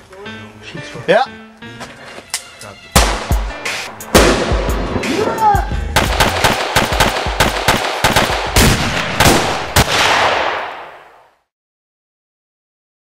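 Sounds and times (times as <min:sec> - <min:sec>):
firecrackers going off rapidly: 0:06.0 - 0:11.3.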